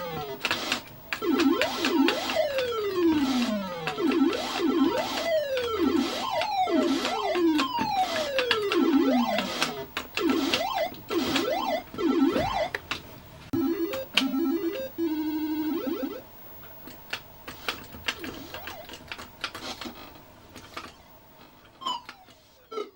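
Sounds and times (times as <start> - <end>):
arcade game swooping dives and shots: 0.0 - 12.9, 13.5 - 16.3, 17.5 - 19.1
game blips and clicks: 0.0 - 20.0, 21.8 - 22.9.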